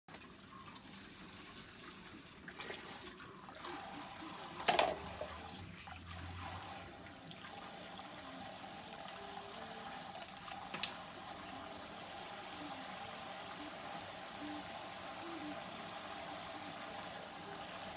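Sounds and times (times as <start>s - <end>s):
water running in a basin: 0.1s - 17.9s.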